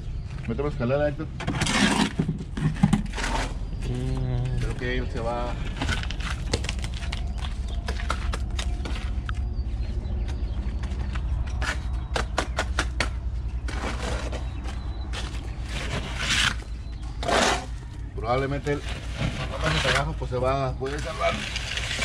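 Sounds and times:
steady low rumble: 0:02.3 - 0:17.2
short scraping sounds: 0:17.2 - 0:17.8.

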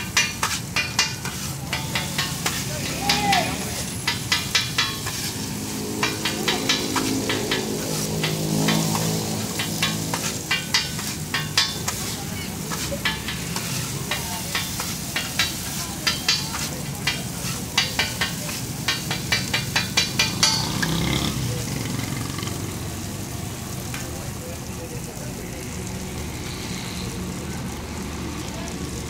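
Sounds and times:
metal spatula clicking on griddle: 0:00.0 - 0:05.4, 0:06.0 - 0:21.1
frying sizzle: 0:00.0 - 0:29.0.

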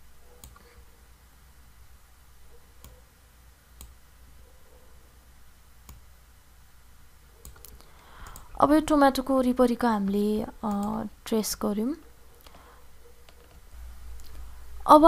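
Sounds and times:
low room hum: 0:00.0 - 0:15.0
computer mouse clicks: 0:00.4 - 0:00.7, 0:07.4 - 0:08.5.

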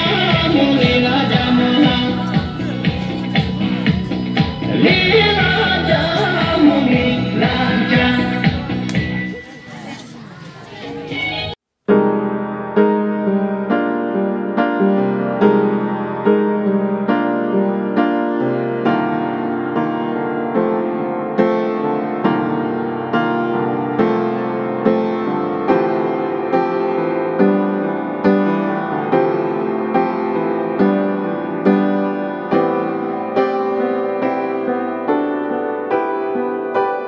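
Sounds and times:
slow tender piano music: 0:11.9 - 0:37.0.

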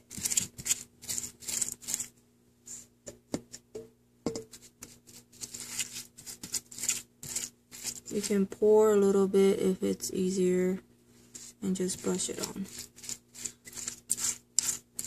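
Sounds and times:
brush strokes on meat: 0:11.2 - 0:15.0.

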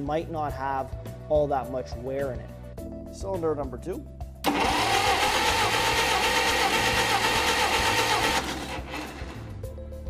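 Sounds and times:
engine cranking on starter: 0:04.4 - 0:09.5.

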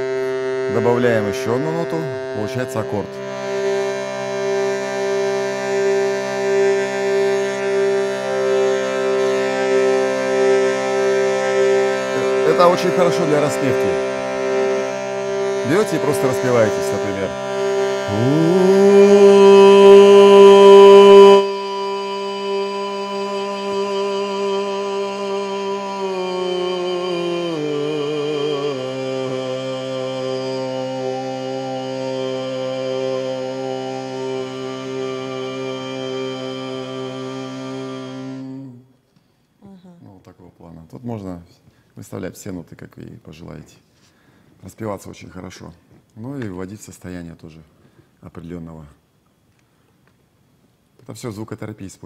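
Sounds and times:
person singing: 0:00.0 - 0:38.9
reed drone box chord: 0:00.0 - 0:38.9.

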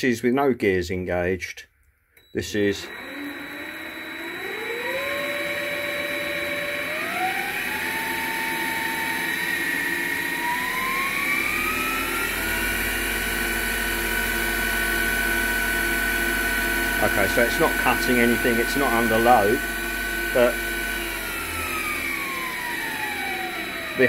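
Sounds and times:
lathe motor hum rising in pitch: 0:02.5 - 0:24.0.

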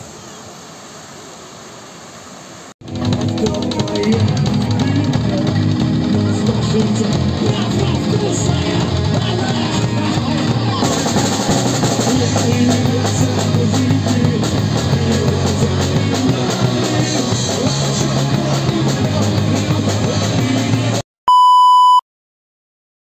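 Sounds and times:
rock band playing live: 0:02.8 - 0:21.0
steady drum beat: 0:02.8 - 0:21.0
loud electronic beep: 0:21.3 - 0:22.0.

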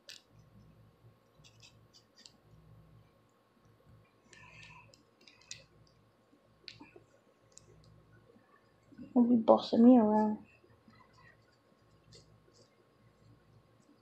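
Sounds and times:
comb scratching scalp: 0:01.4 - 0:02.4.

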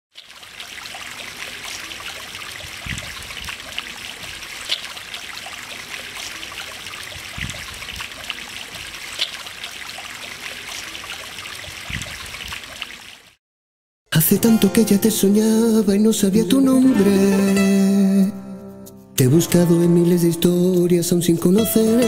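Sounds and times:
fountain water trickling and splashing: 0:00.1 - 0:13.4.

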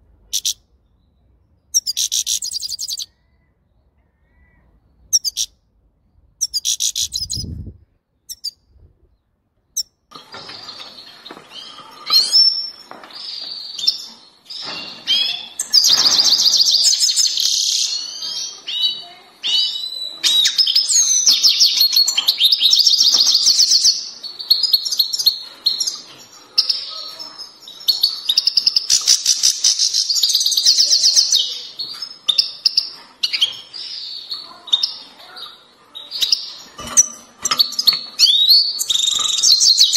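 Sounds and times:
goldfinch twittering song: 0:05.1 - 0:05.5, 0:08.3 - 0:08.6.

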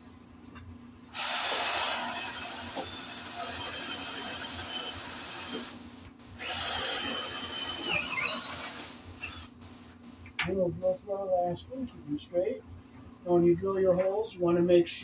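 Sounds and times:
cordless drill boring into wood: 0:01.2 - 0:05.8, 0:06.4 - 0:09.5.

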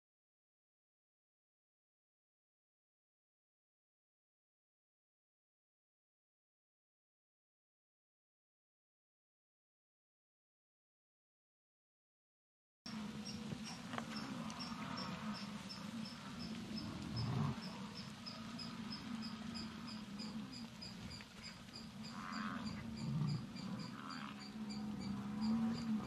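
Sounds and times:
insects chirping: 0:12.9 - 0:26.0
low wavering rumble: 0:12.9 - 0:26.0.

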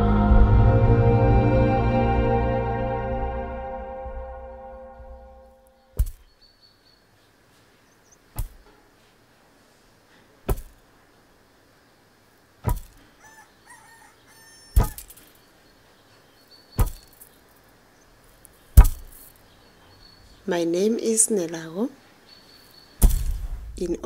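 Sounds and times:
small birds chirping: 0:05.7 - 0:24.0
wooden pestle pounding grain: 0:10.5 - 0:10.8, 0:12.6 - 0:13.0, 0:18.8 - 0:19.2
rooster crowing: 0:13.1 - 0:15.1.

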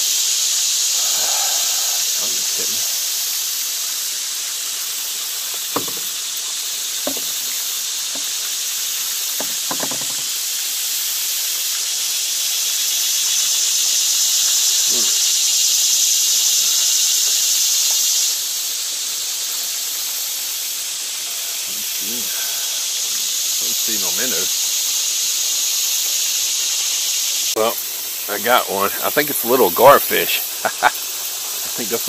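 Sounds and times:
cicadas buzzing: 0:00.0 - 0:32.0
light knocks: 0:05.6 - 0:06.1, 0:07.0 - 0:07.4, 0:09.4 - 0:10.3.

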